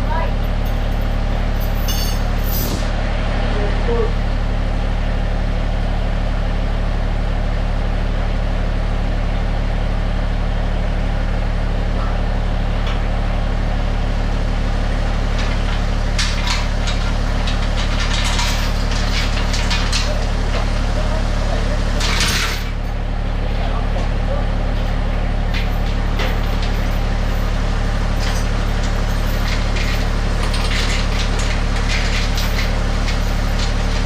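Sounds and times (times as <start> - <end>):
engine idling: 0.0 - 34.0
sharp knocks and clatter: 15.3 - 20.9, 22.0 - 22.9, 25.5 - 27.5, 28.1 - 34.0.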